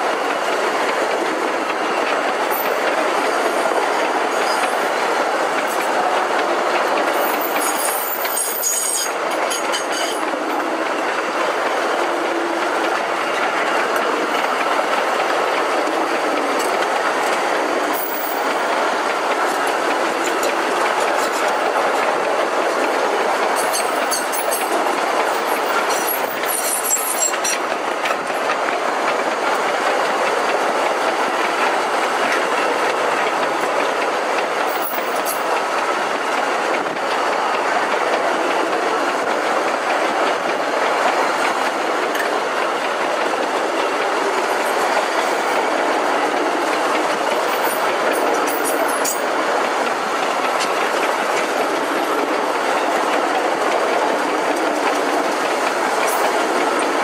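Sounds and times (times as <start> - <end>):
train wheels rattling: 0.0 - 57.0
high-pitched wheel squeals: 7.2 - 10.2.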